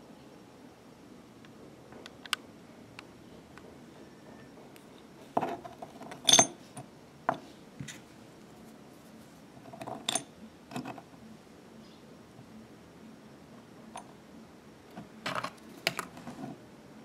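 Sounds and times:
metal bobbins clinking: 0:05.4 - 0:06.9, 0:09.7 - 0:11.1.

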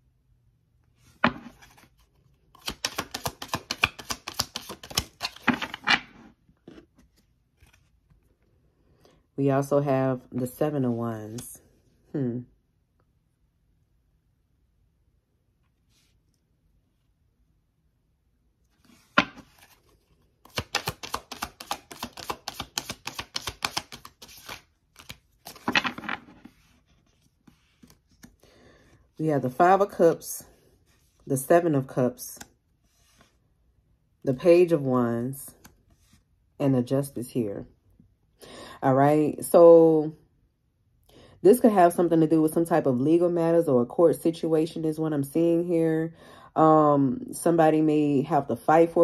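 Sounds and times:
deck of cards rustling: 0:01.0 - 0:08.4, 0:18.7 - 0:33.4
cards clicking while shuffled: 0:02.5 - 0:05.8, 0:20.4 - 0:26.0.

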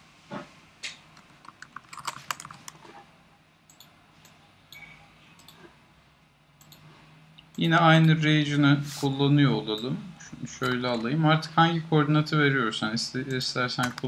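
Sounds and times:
computer keyboard typing: 0:01.2 - 0:02.8.

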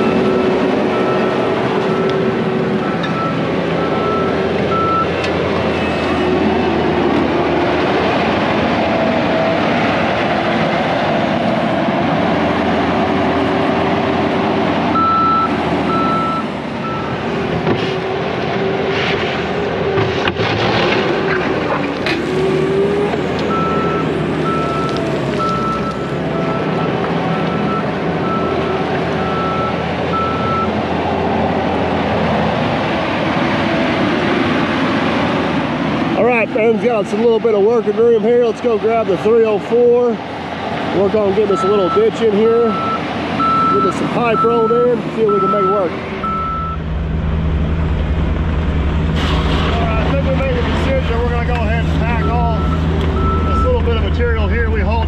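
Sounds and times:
diesel engine running: 0:00.0 - 0:55.0
backup alarm beeping: 0:02.8 - 0:05.1, 0:15.0 - 0:17.2, 0:23.5 - 0:30.7, 0:41.4 - 0:46.8, 0:52.2 - 0:54.0.

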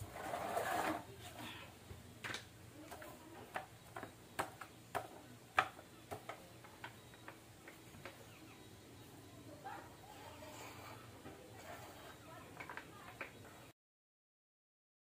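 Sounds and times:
plastic tray scraping on tiles: 0:00.0 - 0:01.5
paint roller clicks and taps: 0:02.2 - 0:08.2, 0:12.5 - 0:13.6.

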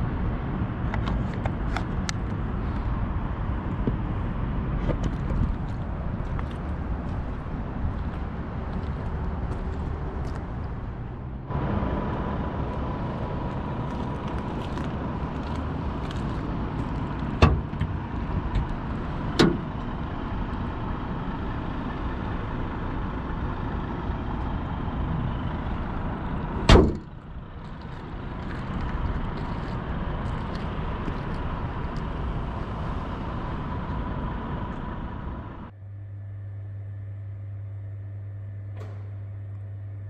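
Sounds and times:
road and tyre noise: 0:00.0 - 0:40.0
loud thump: 0:26.7 - 0:27.1.

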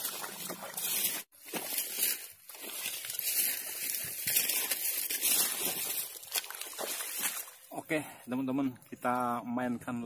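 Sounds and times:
close rustling and crinkling: 0:00.0 - 0:07.6.

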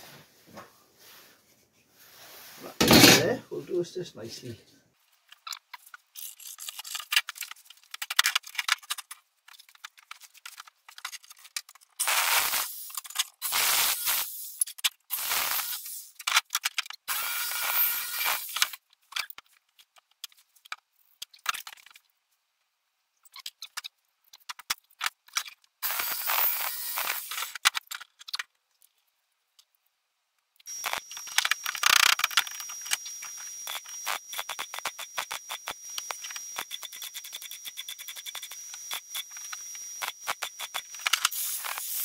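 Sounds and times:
jigsaw cutting steel plate: 0:02.8 - 0:03.4, 0:12.0 - 0:16.1, 0:17.1 - 0:18.8, 0:25.8 - 0:27.6, 0:30.7 - 0:42.0
metal pieces scraping and clinking: 0:02.8 - 0:03.4, 0:05.4 - 0:11.9.

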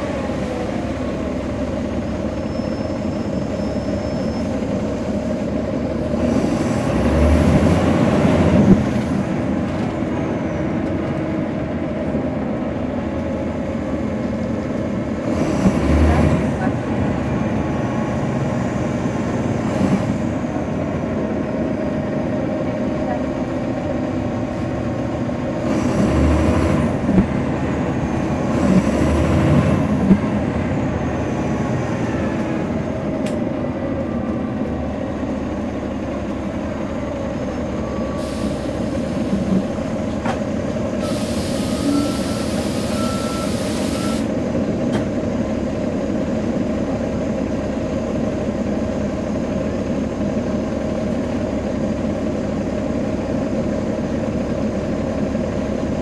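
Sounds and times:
bus diesel engine running: 0:00.0 - 0:56.0
compressed air hiss: 0:38.2 - 0:39.2, 0:41.0 - 0:44.3
faint beeping tone: 0:41.8 - 0:44.2.

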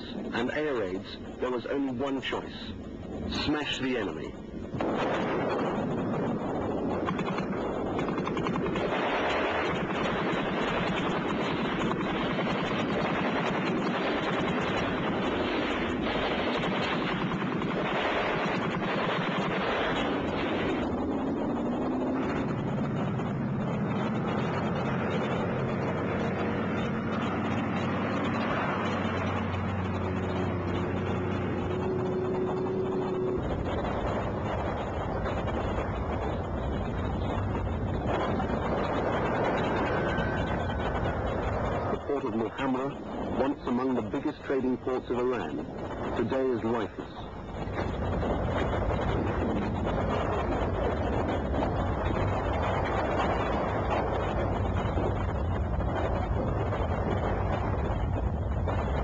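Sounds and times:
low drone with held tones: 0:21.7 - 0:35.4.

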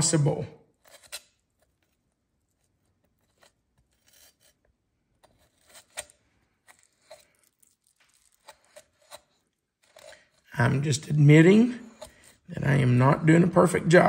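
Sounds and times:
knife scraping along bone: 0:00.8 - 0:10.5.

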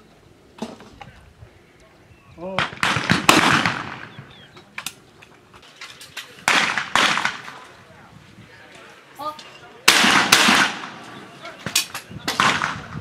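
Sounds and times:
shotgun shots: 0:02.5 - 0:04.3, 0:06.4 - 0:07.6, 0:09.9 - 0:13.0.

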